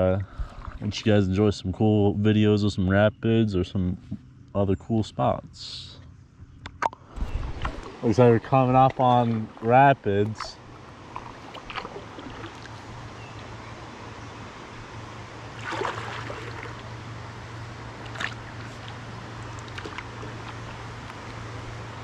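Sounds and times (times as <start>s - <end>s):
river water trickling: 0.2s - 1.3s, 6.0s - 22.0s
water splashes: 7.1s - 14.0s, 14.6s - 22.0s.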